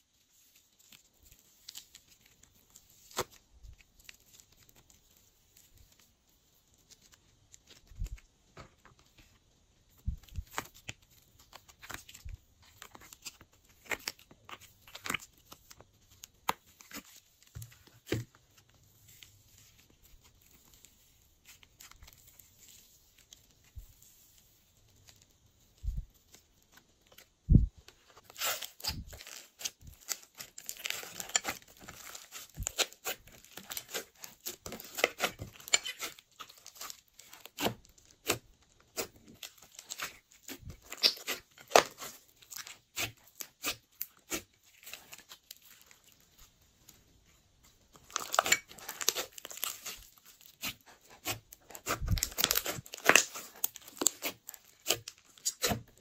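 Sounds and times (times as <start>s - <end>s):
slime crackling and popping: 28.2s - 46.2s, 47.9s - 56.0s.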